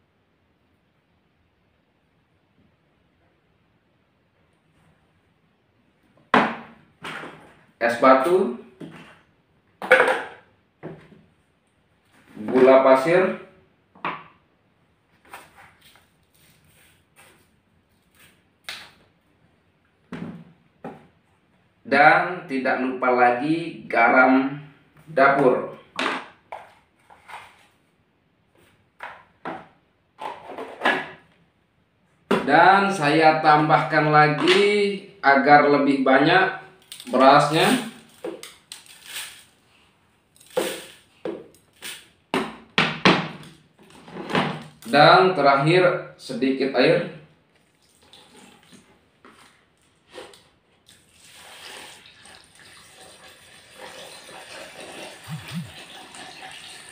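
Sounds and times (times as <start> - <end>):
rice pouring into plastic jug: 51.0 - 56.9.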